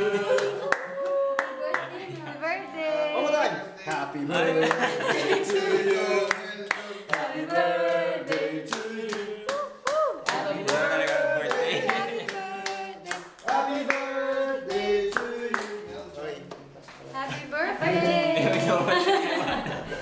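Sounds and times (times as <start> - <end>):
people clapping: 0.0 - 2.4, 3.9 - 17.1
group singing: 0.0 - 20.0.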